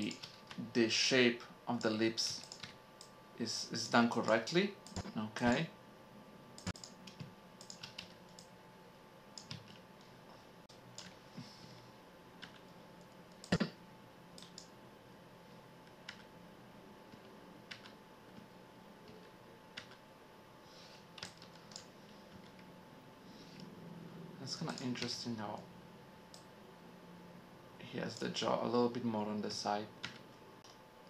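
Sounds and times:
computer keyboard typing: 0.0s - 0.6s, 1.8s - 3.1s, 6.6s - 8.5s, 9.4s - 9.8s, 14.4s - 14.7s, 17.1s - 18.0s, 19.1s - 20.0s, 21.2s - 22.6s
faint steady hum: 0.0s - 31.0s
mouse clicks: 6.6s - 8.5s.

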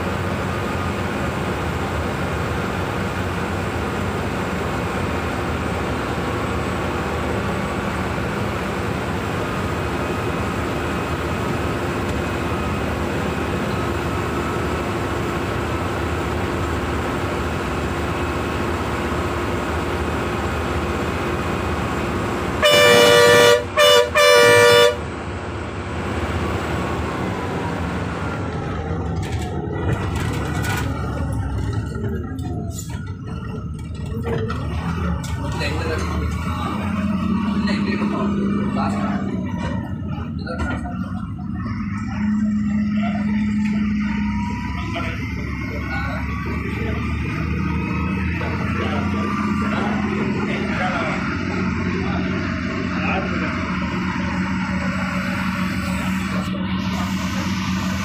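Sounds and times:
bus engine drone: 0.0s - 58.0s
road noise: 0.0s - 58.0s
loud multi-tone horn: 22.6s - 25.1s.

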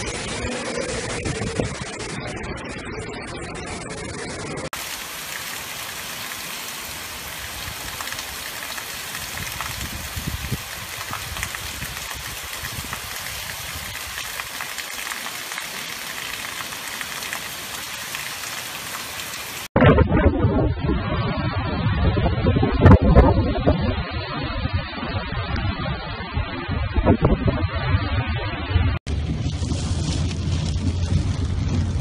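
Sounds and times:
heavy rain hissing: 0.0s - 1.9s, 4.7s - 19.7s
wind gusts: 0.0s - 15.2s, 19.2s - 32.0s.

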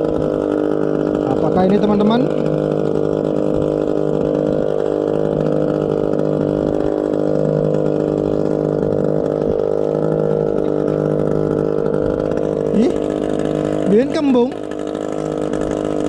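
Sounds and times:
small boat engine running: 0.0s - 16.0s.

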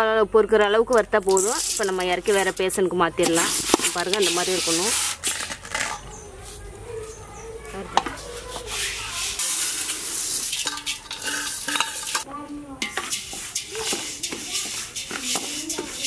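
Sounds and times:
metal ladle scraping in pot: 1.0s - 6.6s, 8.0s - 16.0s
grains pouring into steel bowl: 1.2s - 5.5s, 8.6s - 12.2s, 12.8s - 16.0s.

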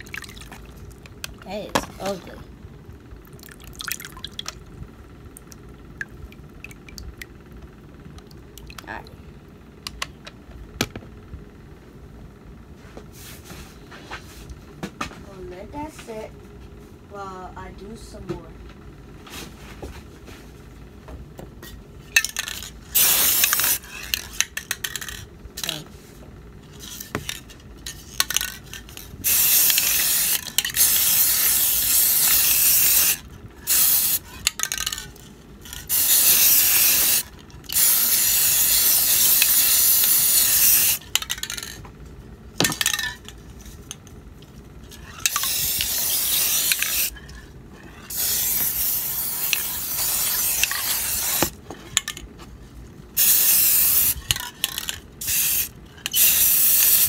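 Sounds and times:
spray paint can hissing: 22.3s - 25.8s, 26.8s - 35.0s, 35.7s - 41.8s, 45.2s - 47.1s, 48.1s - 51.6s, 53.2s - 57.0s.

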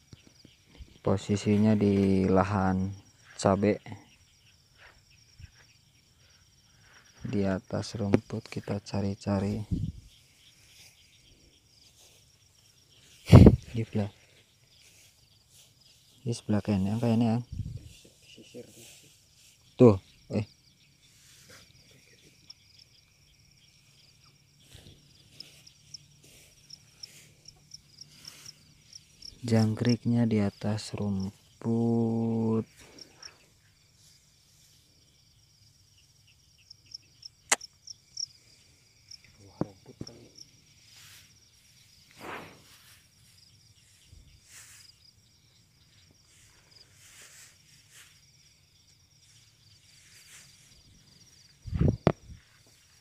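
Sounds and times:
leaves and grass rustling: 0.0s - 36.3s, 38.0s - 53.0s
cricket chirping: 0.0s - 53.0s
footsteps: 4.7s - 5.8s, 10.0s - 20.1s, 23.8s - 29.8s, 45.9s - 53.0s.

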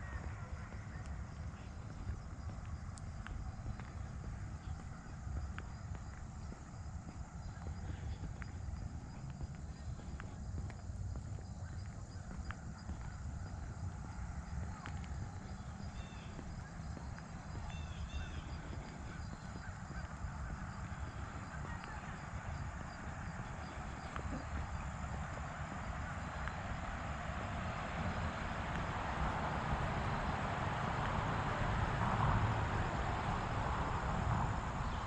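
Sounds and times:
high bird calls: 15.5s - 22.6s.

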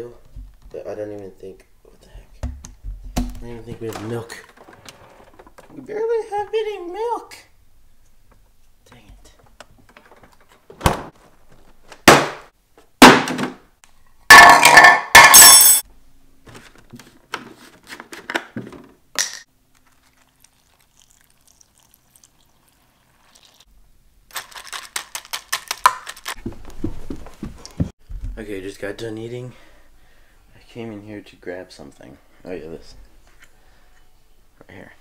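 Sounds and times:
milk pouring: 19.7s - 23.7s.

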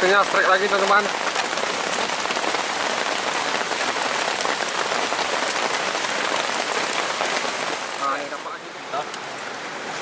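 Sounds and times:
rushing water: 0.0s - 10.0s.

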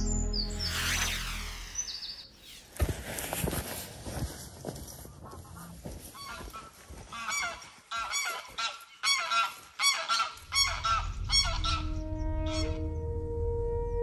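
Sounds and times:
held music notes: 0.0s - 1.5s, 10.5s - 14.0s
geese honking: 5.4s - 13.0s.

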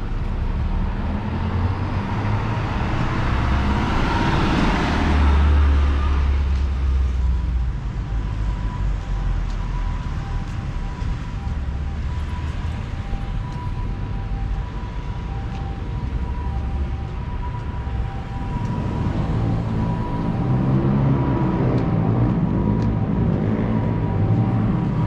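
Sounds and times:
rumble of passing vehicles: 0.0s - 25.0s.

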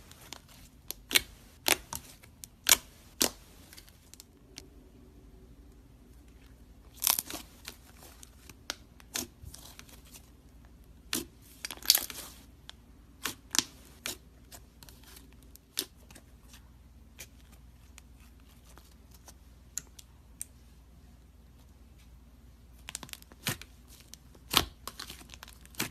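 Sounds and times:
slime crackling and popping: 0.2s - 4.3s, 6.9s - 9.7s.

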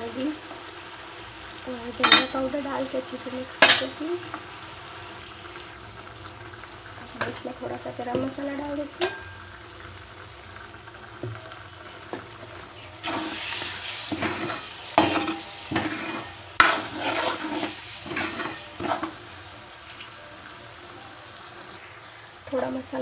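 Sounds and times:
low frying sizzle: 0.0s - 23.0s
spoon knocking pan: 2.0s - 2.4s, 8.1s - 9.6s, 14.0s - 19.3s
spoon scraping metal pan: 13.0s - 19.3s.

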